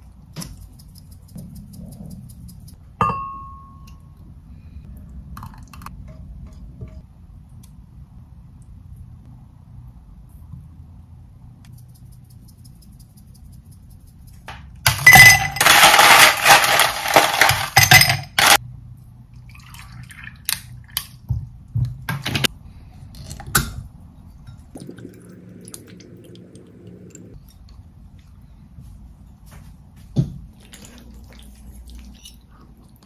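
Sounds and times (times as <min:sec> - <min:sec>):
ice cubes clattering into glasses: 0:14.9 - 0:18.6.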